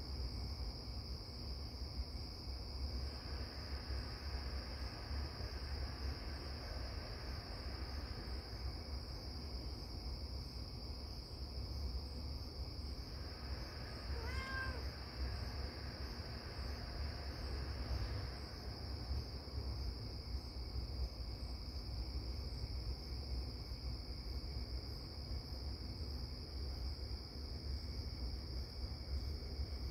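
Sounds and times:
crickets chirring: 0.0s - 29.9s
cat meow: 13.9s - 15.0s.

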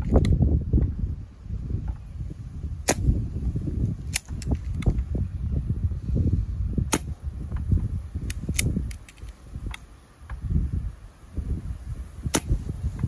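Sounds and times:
air rifle shot crack: 2.8s - 3.2s, 6.8s - 7.2s, 12.3s - 12.6s.

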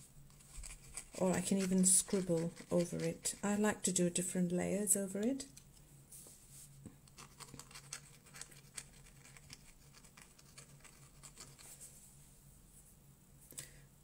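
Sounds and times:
pen nib scratching on paper: 0.3s - 3.6s.

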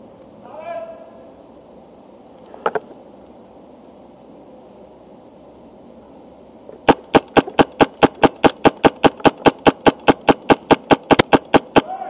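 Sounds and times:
faint background hiss: 0.0s - 12.0s
airsoft rifle rapid shots: 6.8s - 12.0s.

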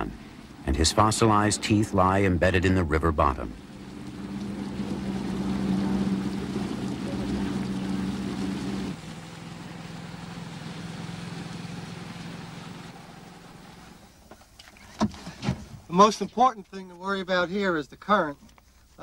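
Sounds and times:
motorboat engine humming: 0.0s - 15.0s.

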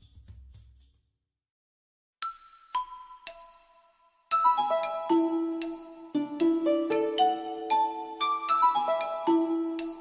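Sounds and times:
light melody of ringing notes: 2.2s - 10.0s.

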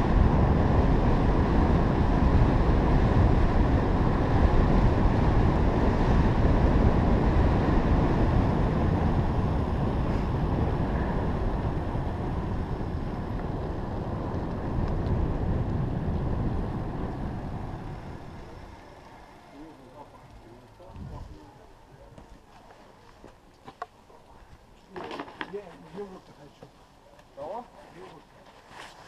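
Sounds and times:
wind rushing over microphone: 0.0s - 18.8s, 20.8s - 21.6s
bike rolling on asphalt: 0.0s - 29.0s.

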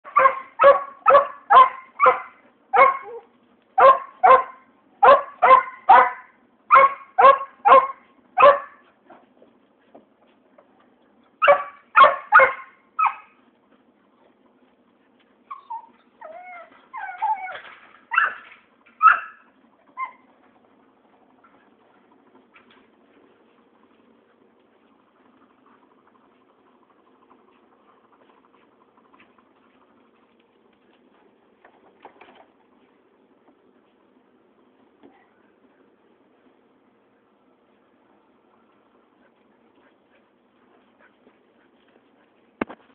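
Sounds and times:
dog barking in sharp yips: 0.1s - 3.2s, 3.8s - 8.8s, 11.4s - 13.3s, 17.2s - 20.2s
dog whining and whimpering: 3.0s - 3.3s, 15.5s - 20.3s.

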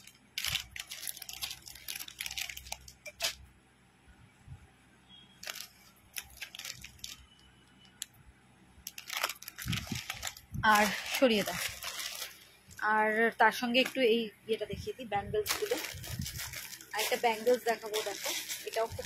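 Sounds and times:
plastic packets crinkling: 0.0s - 3.4s, 5.4s - 8.1s, 8.8s - 12.9s, 13.5s - 14.1s, 15.4s - 19.0s.

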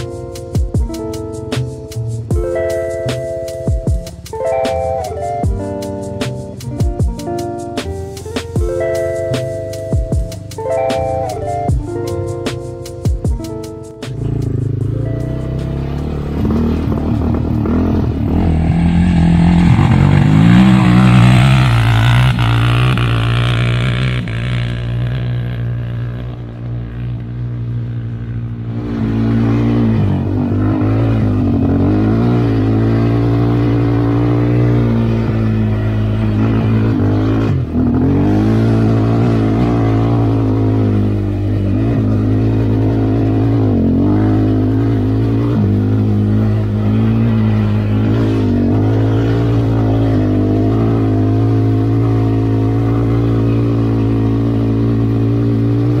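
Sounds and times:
atv engine revving: 0.0s - 56.0s.

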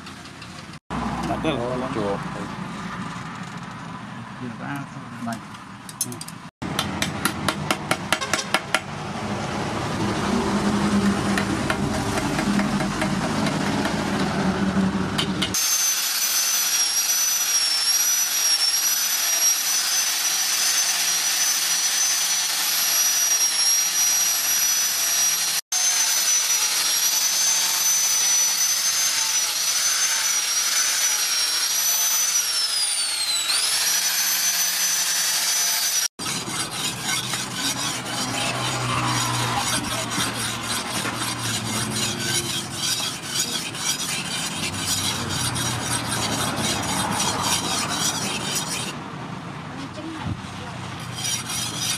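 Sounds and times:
hammer strikes: 5.9s - 8.9s, 11.3s - 14.3s, 15.1s - 15.6s
angle grinder grinding steel: 10.3s - 49.0s, 51.0s - 51.9s.

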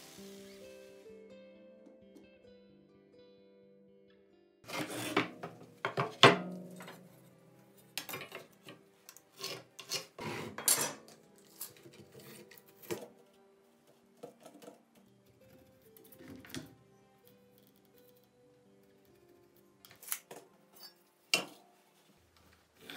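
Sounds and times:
quiet background music: 0.0s - 22.9s
wooden boards scraping and knocking: 4.7s - 7.0s.

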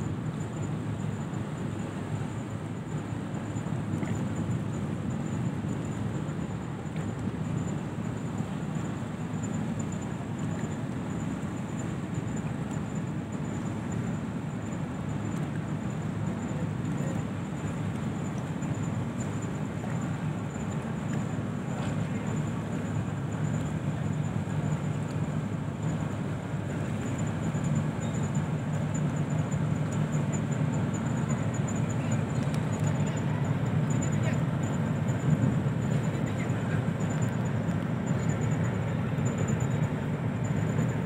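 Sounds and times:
ship engines rumbling: 13.8s - 41.0s.

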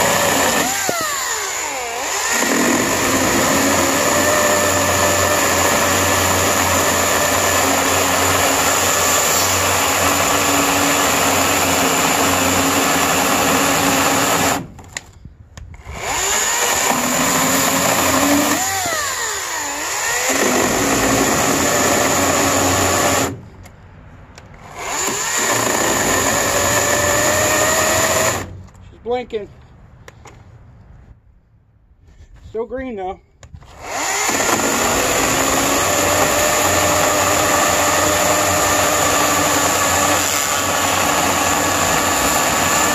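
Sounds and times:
electric chainsaw cutting wood: 0.0s - 15.0s, 15.8s - 23.4s, 24.6s - 28.6s, 33.7s - 42.9s.

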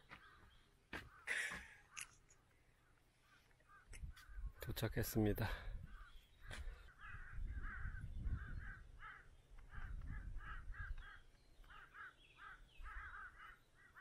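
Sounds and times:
crows cawing: 2.8s - 4.7s, 5.9s - 14.0s.

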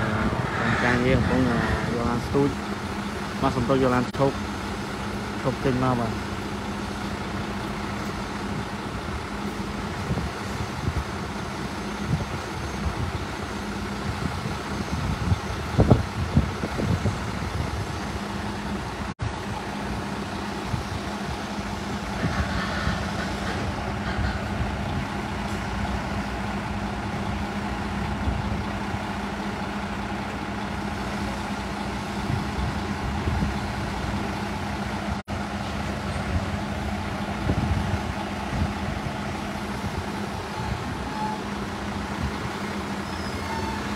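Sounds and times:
vehicle engine idling: 17.6s - 43.9s
engine knocks: 20.7s - 29.1s.

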